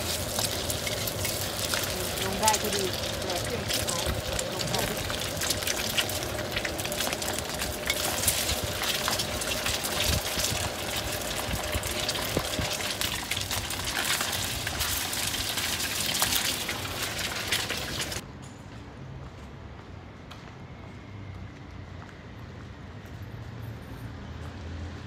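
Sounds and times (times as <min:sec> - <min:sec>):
food sizzling in hot oil: 0:00.0 - 0:18.2.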